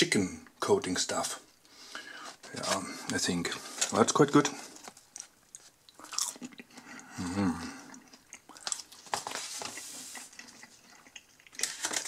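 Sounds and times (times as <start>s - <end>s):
person chewing: 4.7s - 12.0s
person humming: 7.1s - 7.9s.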